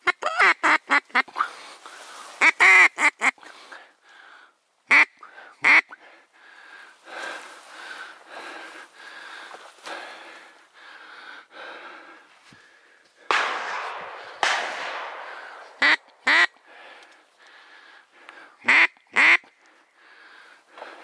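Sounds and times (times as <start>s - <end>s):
loud duck quacks: 2.4s - 3.4s, 4.9s - 6.0s, 15.7s - 16.6s, 18.6s - 19.5s
shotgun shots: 13.3s - 16.6s.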